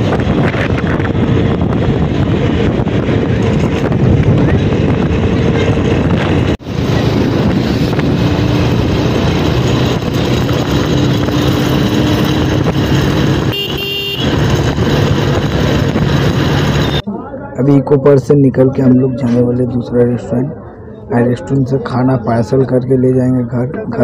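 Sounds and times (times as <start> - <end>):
motorcycle engine running: 0.0 - 17.0
wind rush on microphone: 0.0 - 17.0
horn toot: 13.4 - 14.4.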